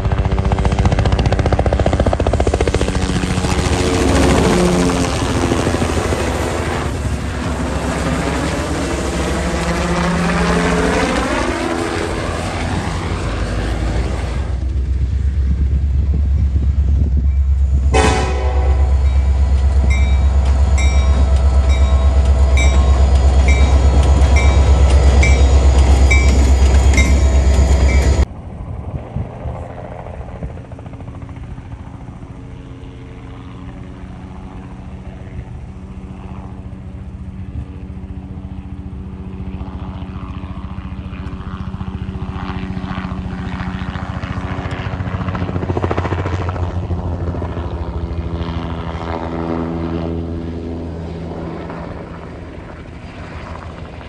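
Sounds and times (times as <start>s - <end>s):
helicopter rotor and engine hum: 0.0s - 54.0s
loud low rumble: 12.8s - 28.4s
railroad crossing bell ringing: 17.2s - 28.3s.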